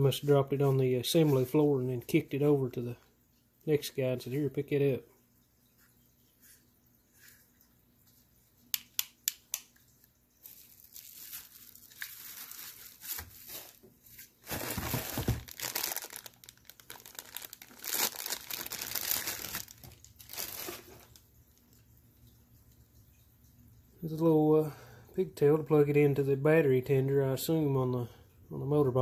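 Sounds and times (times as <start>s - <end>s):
plastic bag crinkling: 10.4s - 21.3s.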